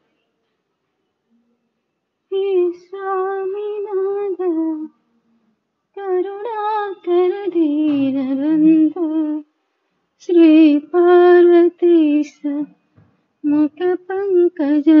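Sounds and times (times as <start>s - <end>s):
woman singing a hymn: 2.3s - 4.9s, 6.0s - 9.5s, 10.2s - 12.7s, 13.4s - 15.0s.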